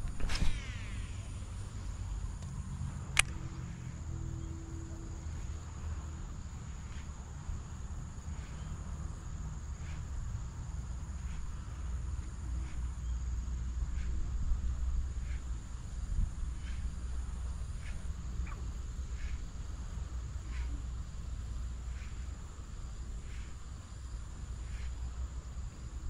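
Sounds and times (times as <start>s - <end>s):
insects buzzing: 0.0s - 26.0s
low rumble: 0.0s - 26.0s
faint ticks: 2.1s - 7.2s, 15.1s - 19.6s, 23.2s - 25.3s
sharp click: 2.4s - 3.4s.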